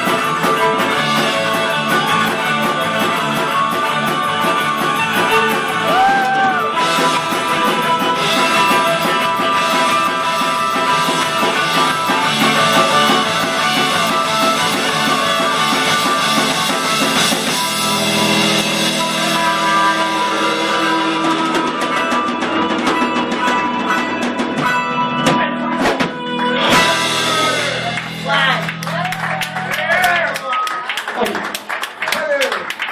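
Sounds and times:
rock band playing: 0:00.0 - 0:32.9.

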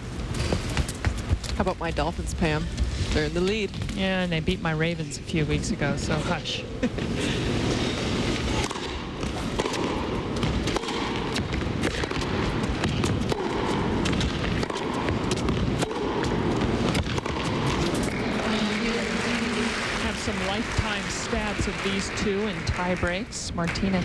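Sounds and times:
crowd clapping and calling out: 0:18.0 - 0:23.8.

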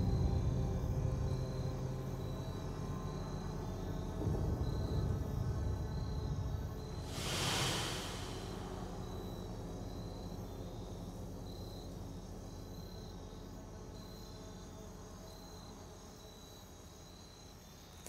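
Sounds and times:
low suspense drone: 0:00.0 - 0:15.3
cricket chirps: 0:00.0 - 0:18.0
soft whooshing swell: 0:07.0 - 0:09.9.

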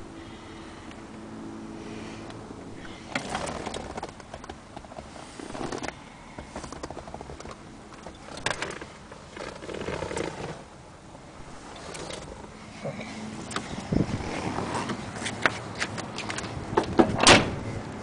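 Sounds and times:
faint steady hum: 0:00.0 - 0:09.6.

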